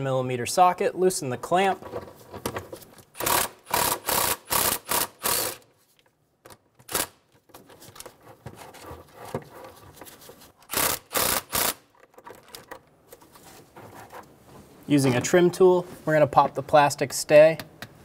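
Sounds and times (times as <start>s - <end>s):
cordless ratchet whirring: 3.2s - 5.6s, 10.7s - 11.8s.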